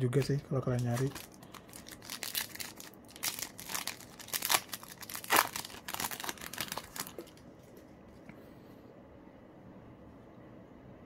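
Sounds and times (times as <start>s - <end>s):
foil wrapper crinkling: 0.1s - 7.4s.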